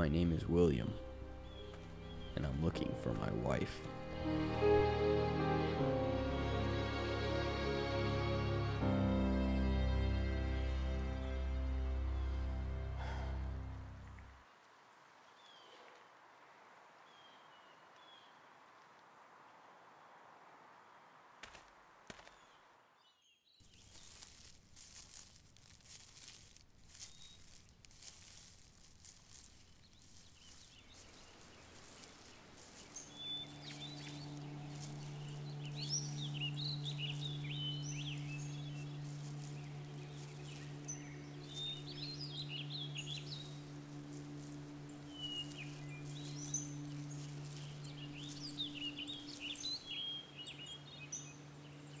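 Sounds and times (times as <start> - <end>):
footsteps in dry leaves: 0.0 - 4.8, 23.6 - 51.9
birds chirping: 0.0 - 7.5, 9.0 - 14.4, 22.2 - 52.0
low steady drone: 0.0 - 14.3, 33.0 - 52.0.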